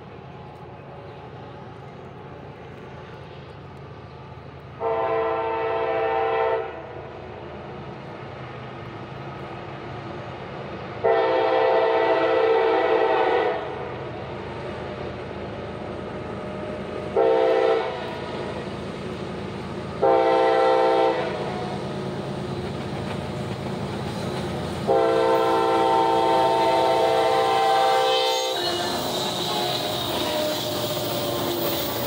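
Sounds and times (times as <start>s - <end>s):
low train rumble: 0.0s - 32.0s
locomotive air horn blasts: 4.8s - 6.9s, 11.0s - 13.8s, 17.2s - 18.1s, 20.0s - 21.6s, 24.9s - 31.7s.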